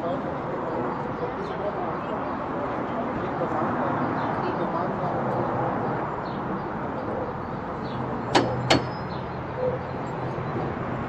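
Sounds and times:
hammer striking chisel on lock: 8.3 - 9.0.

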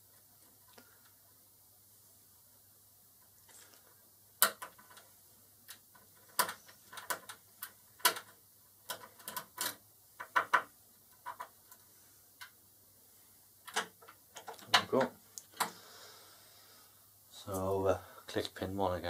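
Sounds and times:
lock pick clicking on lock pins: 8.9 - 10.6, 13.7 - 14.8.

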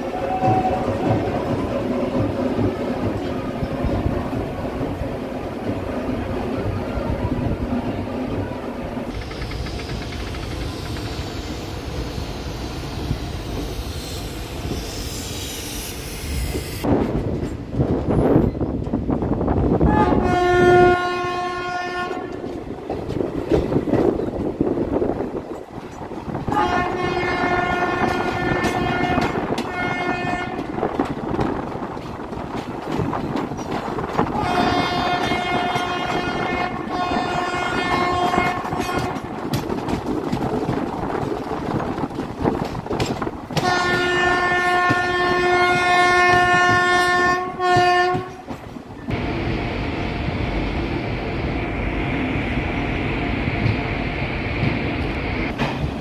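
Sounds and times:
train horn blasts: 0.0 - 1.0, 19.9 - 22.4, 26.5 - 30.8, 34.4 - 39.2, 43.6 - 48.6
train rumble and wheel clatter: 0.0 - 56.0.

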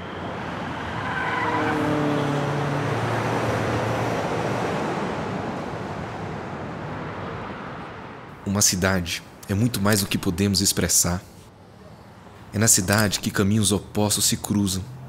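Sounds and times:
car passing by: 0.0 - 8.3
traffic rush: 0.0 - 15.0.

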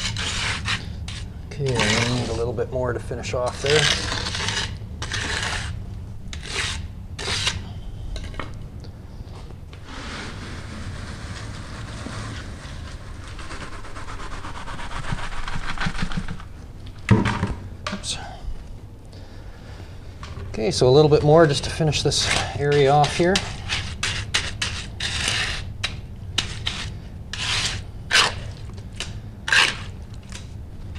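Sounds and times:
float scraping wet concrete: 0.0 - 7.7, 9.8 - 16.5, 20.6 - 30.6.

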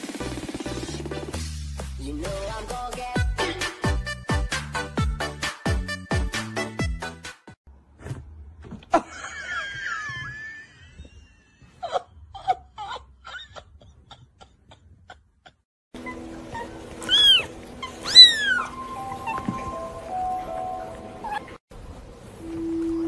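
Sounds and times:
cat meowing: 17.0 - 19.5.

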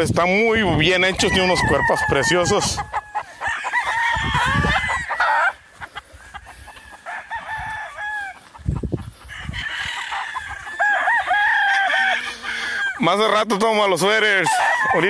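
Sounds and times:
roosters crowing: 0.4 - 15.0.

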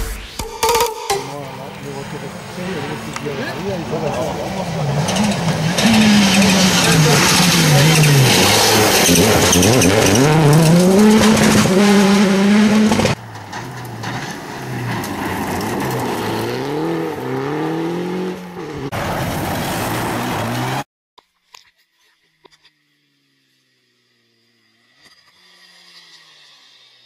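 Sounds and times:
rally car engines revving: 1.2 - 20.8
tyres skidding and spraying gravel: 1.9 - 12.1, 12.8 - 20.8.

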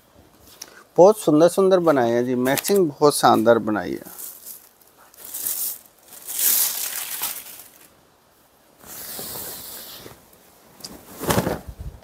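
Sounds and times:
silk fabric rustling: 8.8 - 12.0.

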